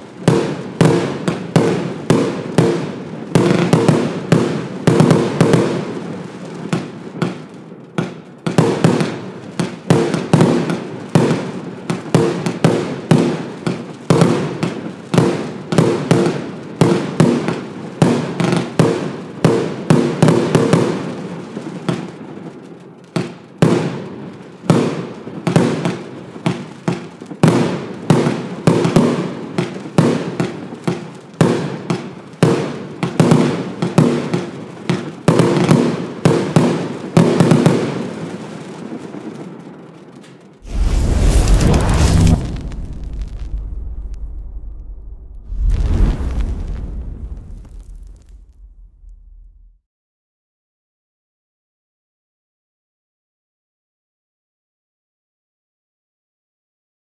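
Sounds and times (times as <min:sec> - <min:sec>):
firework cake bangs: 0:40.6 - 0:49.8.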